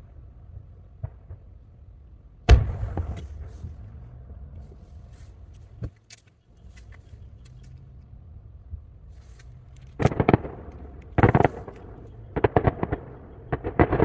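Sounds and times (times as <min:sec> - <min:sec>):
firework booms: 0:02.4 - 0:04.0, 0:10.0 - 0:14.0
firework thuds: 0:02.5 - 0:04.0.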